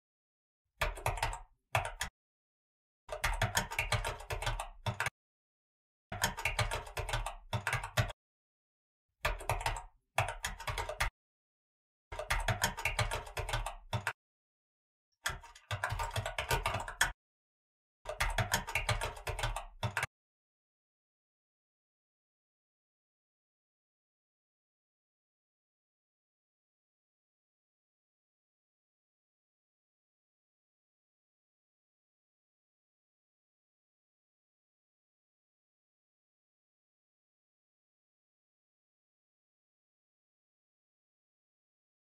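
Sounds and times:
keyboard typing clicks: 0.8s - 2.1s, 3.1s - 5.1s, 6.2s - 8.2s, 9.2s - 11.1s, 12.2s - 14.2s, 15.2s - 17.2s, 18.1s - 20.1s.

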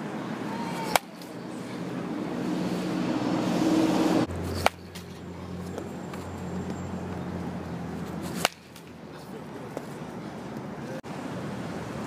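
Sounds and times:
loud rushing noise: 0.0s - 5.6s
outdoor background noise: 0.0s - 12.0s
bat hitting baseball: 0.6s - 1.4s, 4.4s - 6.2s, 8.2s - 9.0s.

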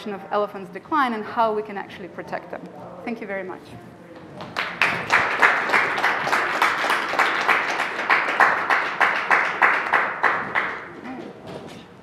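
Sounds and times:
audience applauding: 4.5s - 10.9s.

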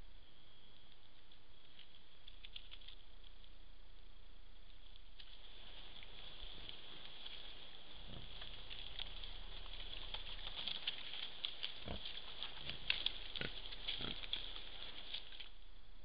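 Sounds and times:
leaves and twigs crackling: 0.0s - 15.8s
steady high hiss: 0.0s - 16.0s
wild boars grunting: 6.4s - 15.1s.

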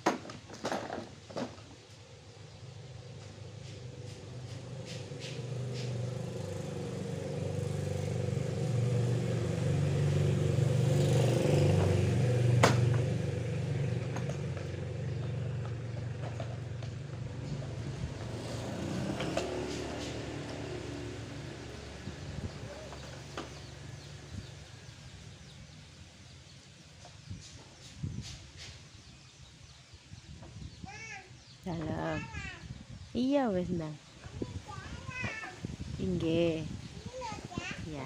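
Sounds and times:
motor vehicle engine passing: 2.4s - 29.8s.

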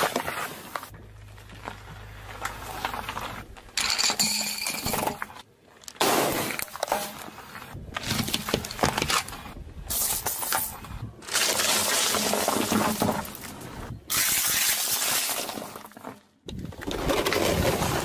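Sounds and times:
candies scattering on pavement: 11.2s - 13.5s.

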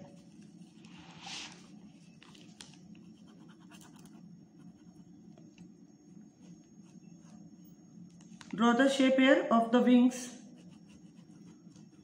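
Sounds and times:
low background hum: 0.0s - 12.0s
pencil scratching on paper: 10.5s - 12.0s.

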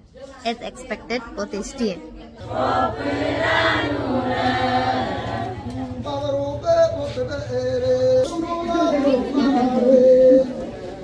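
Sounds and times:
voices singing a chant: 2.4s - 11.0s.

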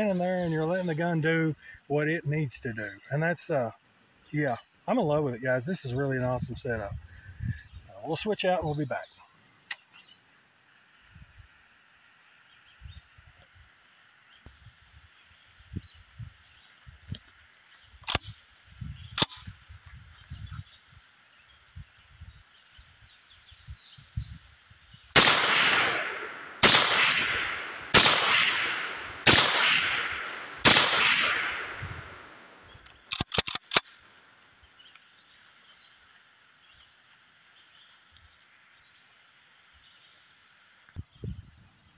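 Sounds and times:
rifle shots: 19.2s - 19.4s, 25.2s - 34.0s
rifle mechanism clicks: 32.8s - 34.0s.

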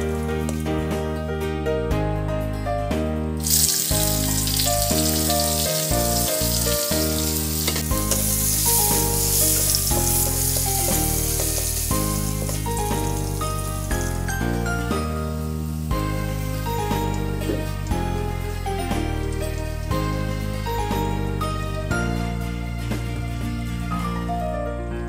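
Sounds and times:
onions sizzling in hot oil: 3.4s - 19.8s.

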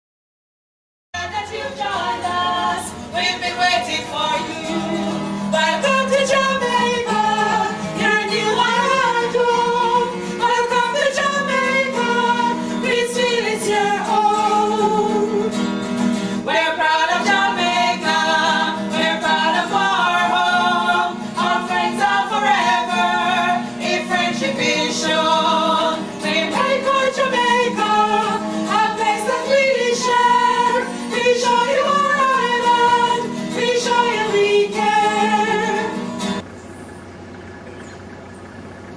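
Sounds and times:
group singing: 1.2s - 36.4s
strummed acoustic guitar: 1.2s - 38.9s.

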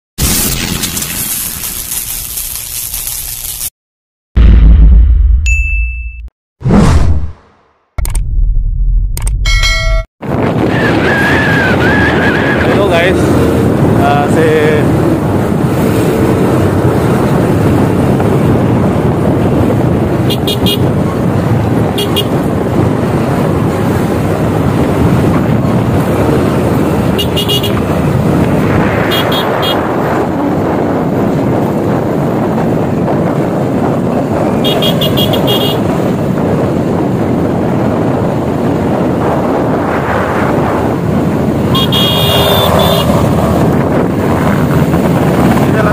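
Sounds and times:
wind buffeting microphone: 10.2s - 45.9s
helicopter rotors rumbling: 20.9s - 45.9s.

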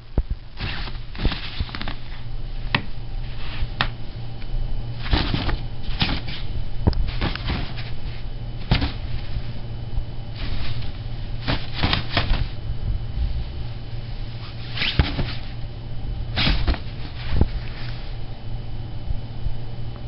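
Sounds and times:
steady low hum: 0.0s - 20.0s
nylon fabric rustling: 0.5s - 4.2s, 4.9s - 9.6s, 10.2s - 12.6s, 13.2s - 15.6s, 16.3s - 18.3s.

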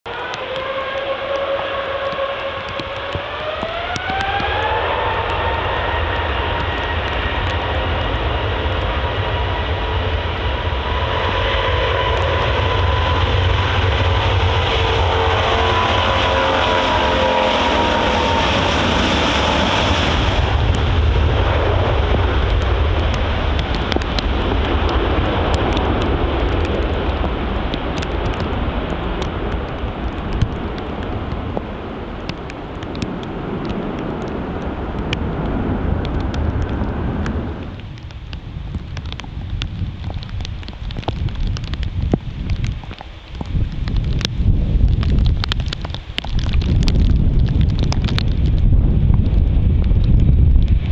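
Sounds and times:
jet engines whining: 0.1s - 37.9s
jet roar and rumble: 0.1s - 50.9s.

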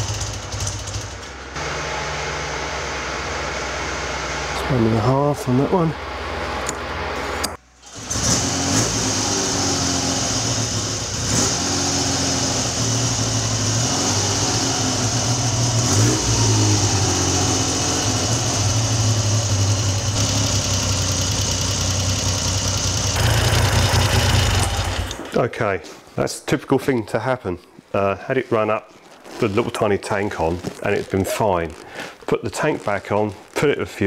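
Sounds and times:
motorcycle engine idling: 0.0s - 1.8s, 16.6s - 25.2s.

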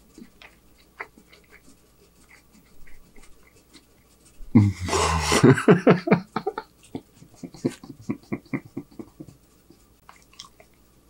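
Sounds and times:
man laughing: 4.6s - 9.4s.

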